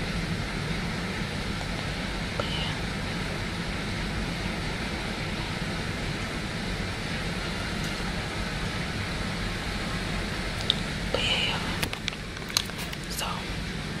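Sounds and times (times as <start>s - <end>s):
heavy rain falling: 0.0s - 14.0s.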